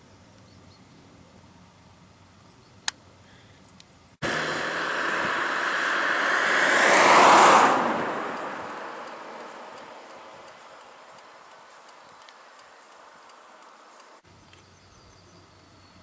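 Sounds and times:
vehicle passing: 0:04.2 - 0:11.2.

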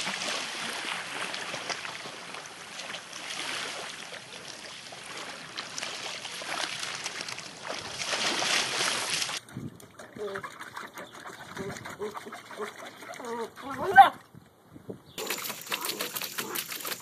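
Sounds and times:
dog splashing in water: 0:03.2 - 0:09.4, 0:15.2 - 0:17.0.

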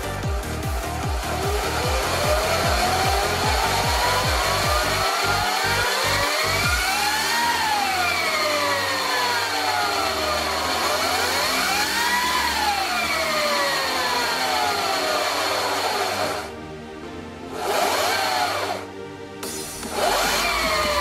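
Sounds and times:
electric motor and chain whining: 0:00.0 - 0:16.5, 0:17.5 - 0:18.9, 0:19.8 - 0:21.0.

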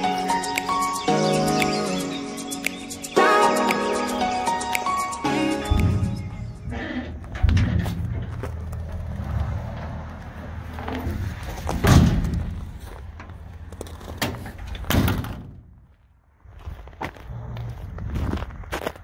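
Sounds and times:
low rumble: 0:05.7 - 0:13.7
metal door slamming: 0:05.8 - 0:09.0, 0:11.7 - 0:12.7, 0:14.2 - 0:15.8.

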